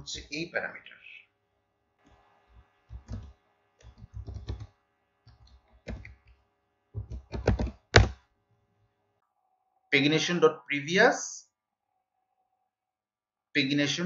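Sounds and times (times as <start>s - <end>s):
typing on computer keyboard: 2.9s - 4.7s, 5.3s - 6.2s, 7.0s - 8.1s.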